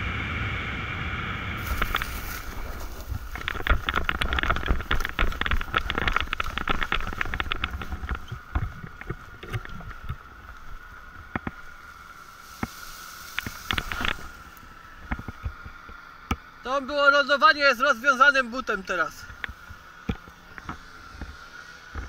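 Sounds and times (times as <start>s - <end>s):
wind on microphone: 0.0s - 10.4s
faint steady whine: 0.0s - 22.0s
knocks and rustles: 1.6s - 11.6s, 12.5s - 14.4s.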